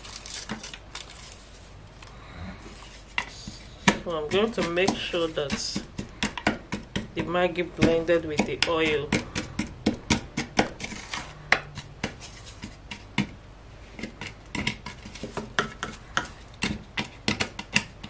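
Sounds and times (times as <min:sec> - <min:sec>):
wooden spatula scraping a pot: 0:02.6 - 0:06.0, 0:10.4 - 0:13.2, 0:13.9 - 0:17.2.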